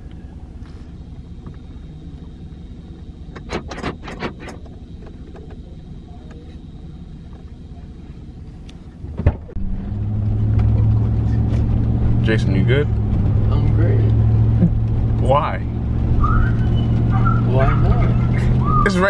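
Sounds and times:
car engine rumble: 0:00.0 - 0:19.0.

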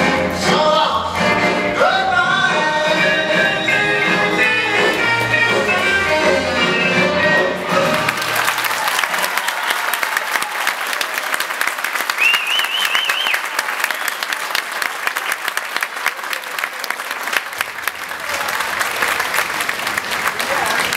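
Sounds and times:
audience clapping: 0:04.3 - 0:06.3, 0:07.7 - 0:20.9.

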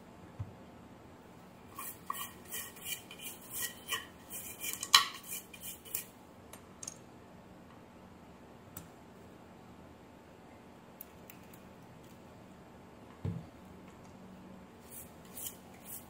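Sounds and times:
brush scrubbing circuit board: 0:01.7 - 0:06.1, 0:14.8 - 0:16.0.

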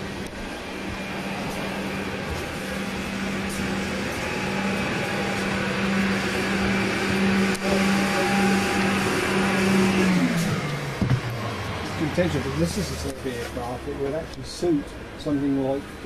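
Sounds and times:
low tone sliding down: 0:00.0 - 0:13.2
ventilation fans humming: 0:00.0 - 0:16.0.

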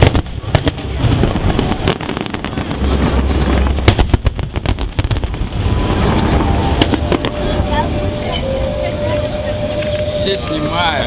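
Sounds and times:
firework bangs and crackles: 0:00.0 - 0:08.5
low rumbling boom: 0:00.0 - 0:10.2.

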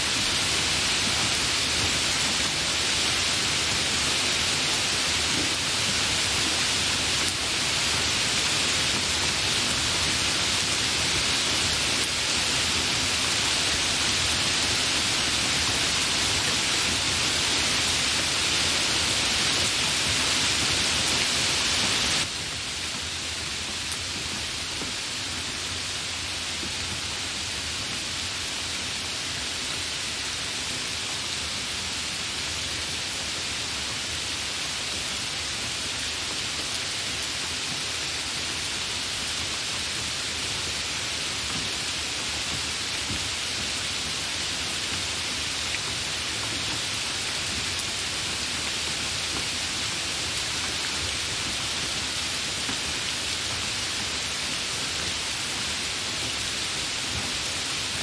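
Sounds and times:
hard rain hissing: 0:00.0 - 0:58.0.

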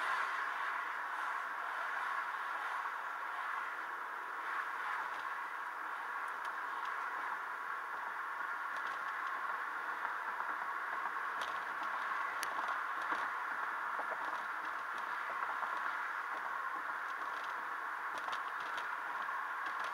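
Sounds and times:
road and tyre noise: 0:00.0 - 0:19.9
faint clicks: 0:06.2 - 0:07.2, 0:08.7 - 0:10.2, 0:11.0 - 0:13.3, 0:14.0 - 0:19.9.

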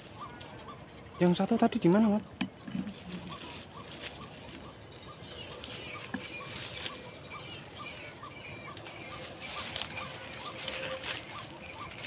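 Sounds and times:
leaves rustling: 0:02.8 - 0:12.0
footsteps in leaf litter: 0:03.0 - 0:04.6, 0:05.3 - 0:12.0.

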